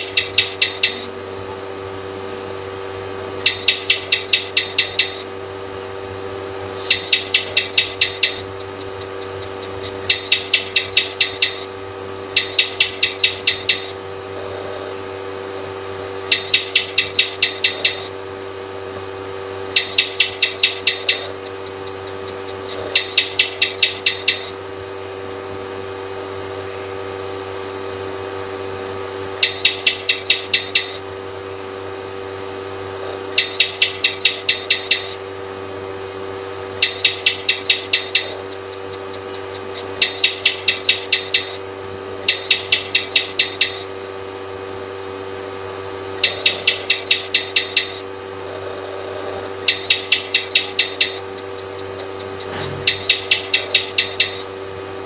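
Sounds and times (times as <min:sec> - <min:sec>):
lizard clicking chirps: 0:00.0 - 0:01.1, 0:03.4 - 0:05.2, 0:06.8 - 0:11.7, 0:12.4 - 0:14.0, 0:16.3 - 0:18.1, 0:19.8 - 0:24.6, 0:29.4 - 0:31.0, 0:33.3 - 0:35.2, 0:36.8 - 0:41.6, 0:42.2 - 0:43.9, 0:46.2 - 0:48.0, 0:49.6 - 0:54.5
steady hum: 0:00.0 - 0:55.0.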